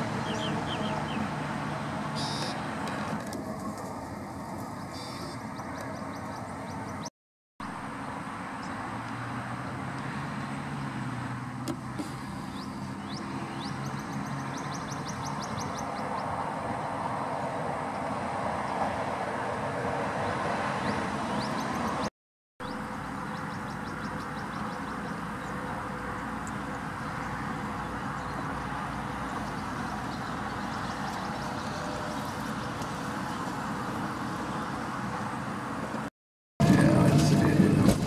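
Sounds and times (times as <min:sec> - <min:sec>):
vehicle engine rumbling: 0:00.0 - 0:18.4, 0:22.6 - 0:38.0
faint bird chirps: 0:04.9 - 0:06.4.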